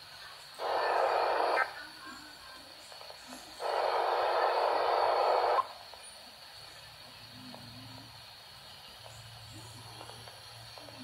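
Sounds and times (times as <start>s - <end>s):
harsh bursts of hissy noise: 0.0s - 6.0s
faint hiss: 0.0s - 11.0s.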